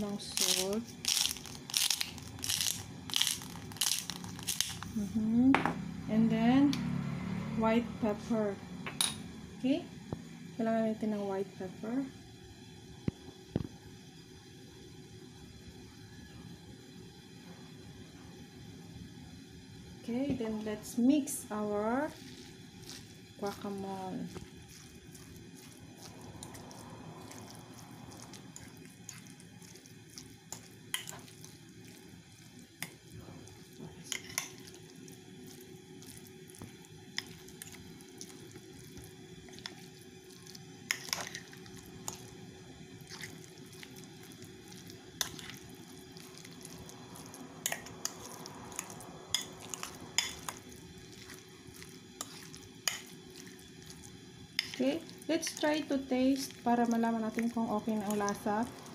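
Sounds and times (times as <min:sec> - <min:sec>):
faint steady hum: 0:00.0 - 0:58.9
fork mashing wet food: 0:22.1 - 0:58.9.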